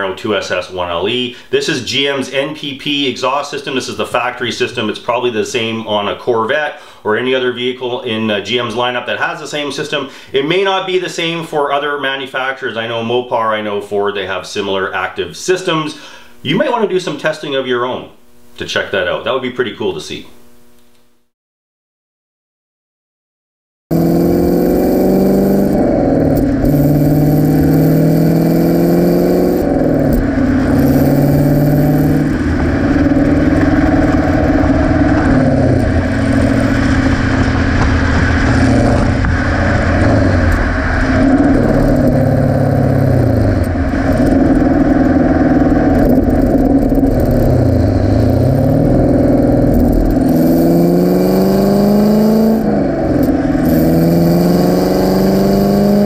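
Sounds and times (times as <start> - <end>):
car exhaust through gear changes: 23.9 - 56.0
road and wind noise: 23.9 - 56.0.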